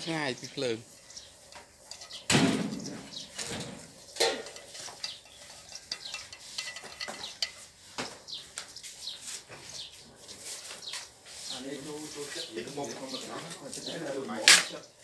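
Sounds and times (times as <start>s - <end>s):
chopsticks scraping a metal pan: 0.9s - 2.3s, 3.2s - 7.9s.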